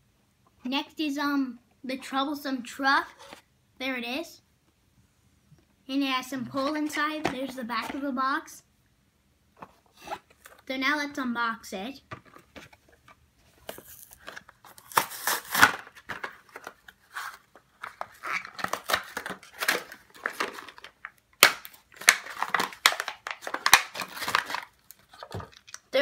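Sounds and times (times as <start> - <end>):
blister pack tearing and crinkling: 13.7 - 25.9.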